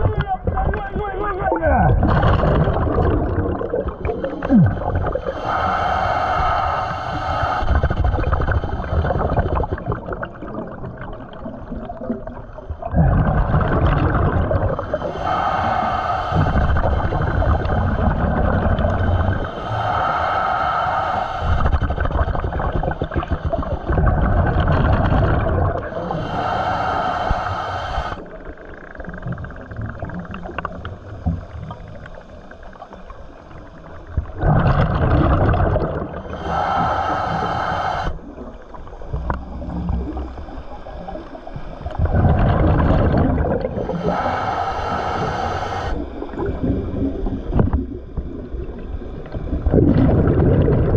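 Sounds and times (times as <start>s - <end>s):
regulator exhale bubble bursts: 1.9s - 50.9s
regulator inhale whistling hiss: 5.1s - 9.8s, 14.8s - 18.2s, 18.9s - 22.5s, 25.9s - 28.8s, 36.1s - 38.4s, 43.6s - 46.7s.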